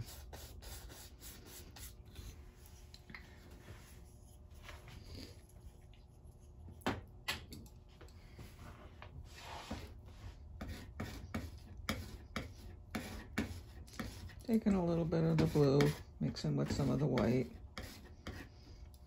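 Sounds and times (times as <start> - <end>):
paintbrush rubbing strokes: 8.5 - 16.0.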